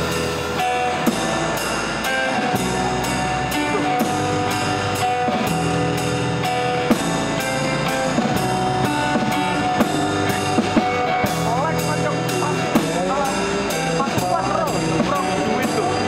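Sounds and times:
acoustic guitars strummed: 0.0 - 16.0
drums and cymbal beat: 0.0 - 16.0.

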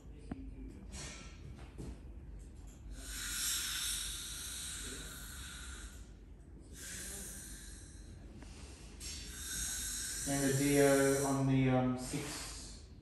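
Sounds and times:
dental air-water syringe hissing: 2.9 - 6.1, 6.7 - 8.2, 9.0 - 11.6.

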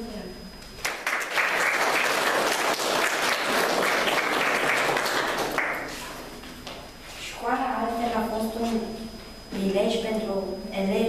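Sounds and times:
audience applauding: 0.8 - 6.0.

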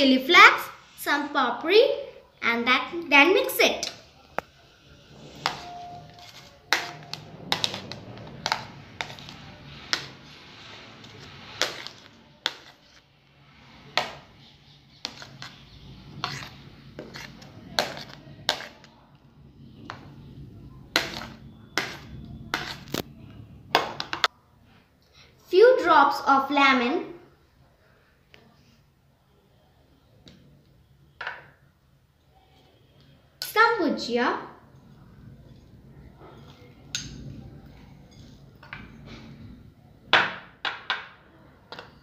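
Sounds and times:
spoon scraping plate and bowl: 4.9 - 13.0, 13.6 - 18.9.

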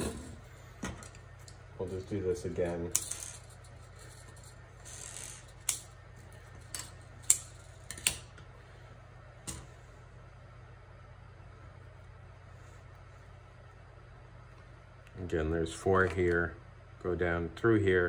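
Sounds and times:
scissors and wire clicking: 5.6 - 5.9.

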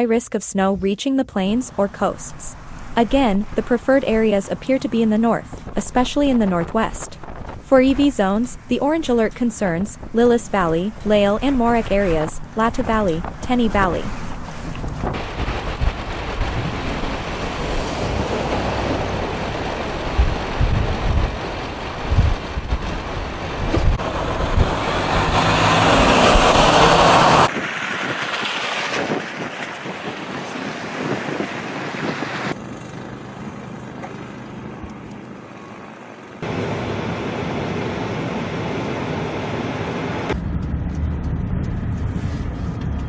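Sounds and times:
wind blowing on microphone: 2.7 - 32.6.

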